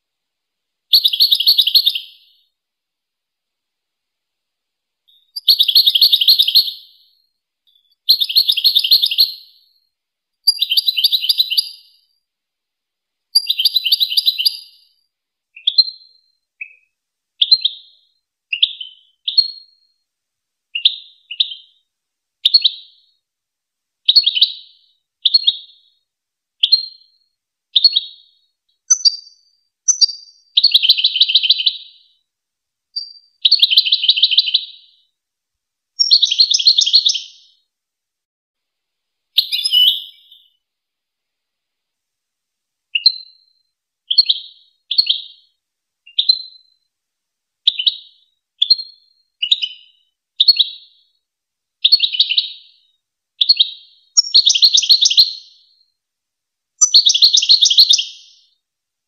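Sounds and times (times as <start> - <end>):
buzzy trilled birdsong: 0.9 - 2.6, 5.1 - 12.2, 13.4 - 20.0, 20.7 - 23.2, 24.1 - 26.0, 26.6 - 32.2, 33.0 - 35.1, 36.0 - 37.6, 39.4 - 40.6, 42.9 - 46.9, 47.7 - 51.2, 51.8 - 55.9, 56.8 - 58.6
short high bird notes: 39.4 - 40.5.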